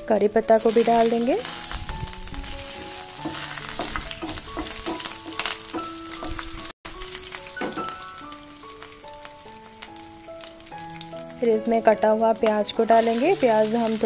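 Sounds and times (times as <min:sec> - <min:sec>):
simple background melody: 0:00.0 - 0:14.0
spices sizzling in hot fat: 0:00.0 - 0:14.0
wooden spatula stirring: 0:01.5 - 0:06.4.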